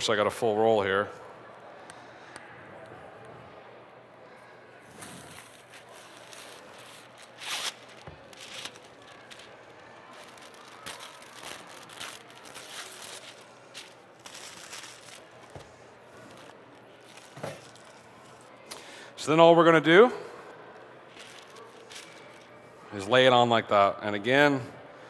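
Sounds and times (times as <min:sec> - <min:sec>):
paper tearing: 0:05.0 - 0:15.6
paper rustling and crinkling: 0:05.0 - 0:18.5, 0:21.1 - 0:22.5.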